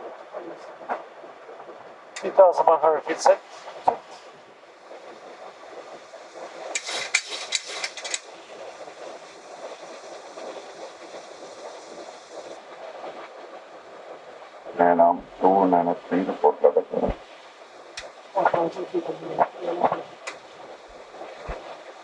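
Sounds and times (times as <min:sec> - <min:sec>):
steady rush of air: 0:00.0 - 0:22.0
cockpit equipment noise: 0:06.4 - 0:09.2
quick run of sharp clicks: 0:06.7 - 0:08.3.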